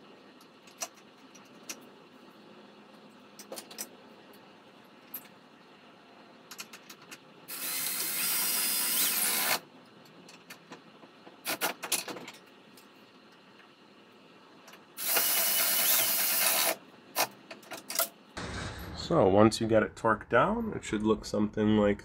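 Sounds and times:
cordless ratchet running: 15.0s - 16.8s.

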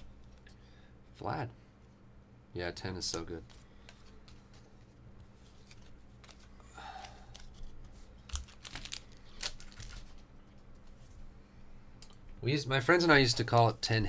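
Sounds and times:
cards and foil wrappers rustling: 3.0s - 10.9s.

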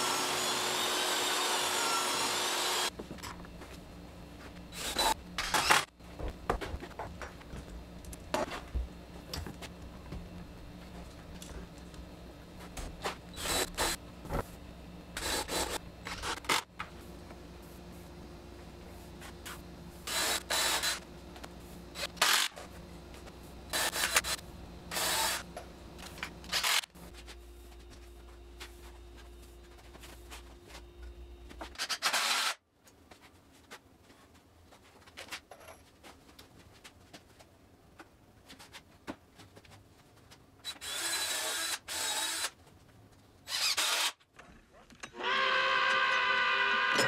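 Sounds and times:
steady low hum: 2.9s - 31.8s
cordless drill driving screws: 40.7s - 42.5s, 43.5s - 44.2s.

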